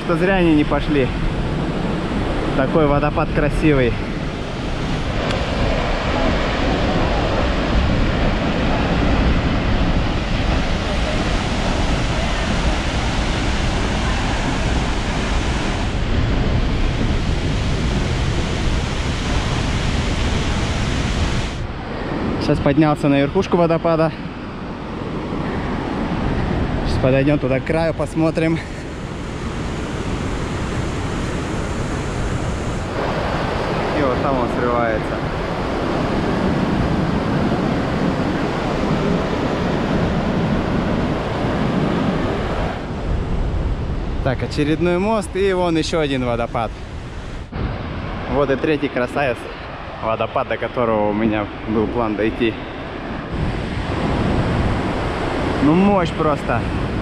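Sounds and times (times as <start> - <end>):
large waterfall rushing: 0.0 - 43.6, 44.5 - 57.0
waterfall rushing: 2.4 - 21.6, 28.7 - 35.0.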